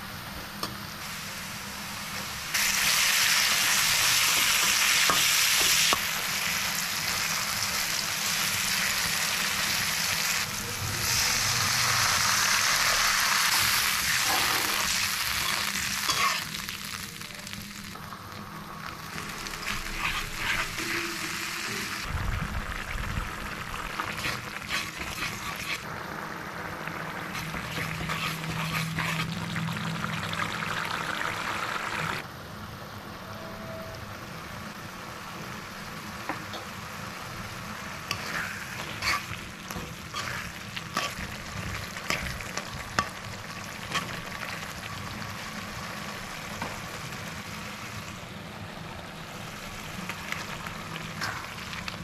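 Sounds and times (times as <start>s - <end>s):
masala sizzling in hot oil: 0.0s - 32.8s, 34.1s - 52.0s
metal spatula scraping pan: 14.2s - 16.5s, 19.9s - 21.3s, 24.2s - 25.8s, 27.4s - 29.3s, 38.1s - 41.4s.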